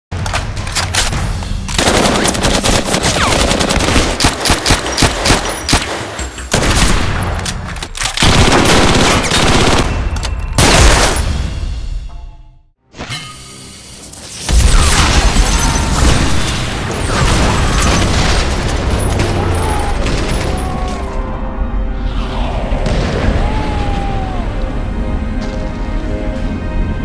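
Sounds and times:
rapid automatic gunfire: 0:01.8 - 0:06.9, 0:08.2 - 0:10.0.

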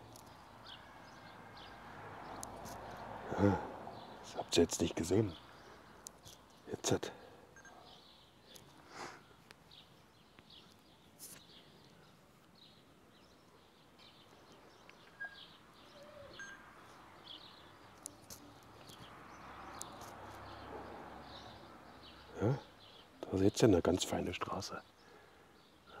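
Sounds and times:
small birds chirping: 0:00.0 - 0:26.0
man speaking: 0:04.3 - 0:05.4, 0:06.7 - 0:07.2, 0:22.3 - 0:24.8.

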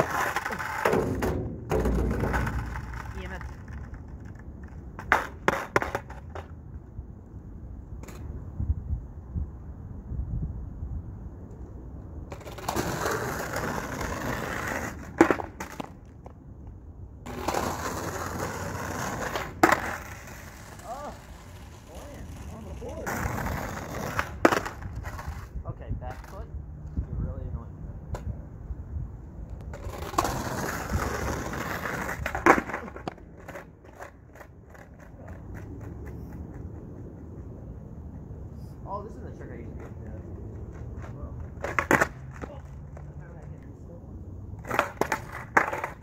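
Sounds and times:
skateboard clacking on pavement: 0:00.0 - 0:06.6, 0:12.3 - 0:25.5, 0:29.6 - 0:37.8, 0:39.7 - 0:43.6, 0:44.6 - 0:46.0
skateboard knock: 0:00.0 - 0:06.6
skateboard wheels rolling on asphalt: 0:00.0 - 0:46.0.

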